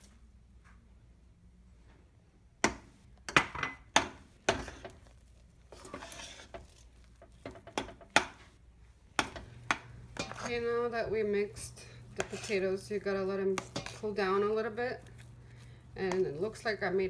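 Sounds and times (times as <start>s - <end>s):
utensil clinking on steel pot: 9.2s - 10.8s, 13.5s - 14.4s.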